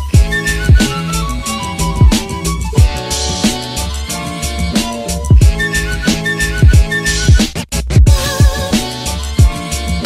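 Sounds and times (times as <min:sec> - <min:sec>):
held melodic notes: 0:00.0 - 0:06.7
deep kick drum: 0:01.9 - 0:03.0, 0:05.3 - 0:05.6, 0:06.6 - 0:07.4, 0:08.0 - 0:08.8.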